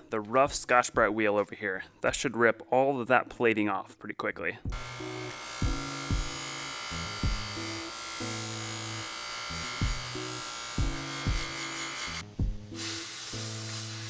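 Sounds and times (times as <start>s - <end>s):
background music with kick drum: 0.0s - 2.4s, 4.6s - 14.0s
bench buffer abrasive hiss: 4.8s - 14.0s.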